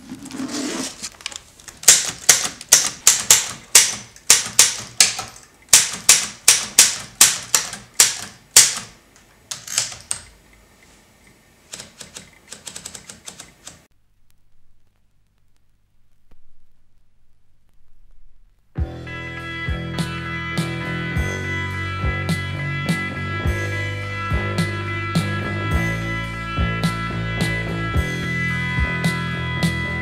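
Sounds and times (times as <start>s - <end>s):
muffled handling sound: 0.0s - 1.8s
typewriter keystrokes: 1.8s - 10.3s, 11.7s - 13.9s.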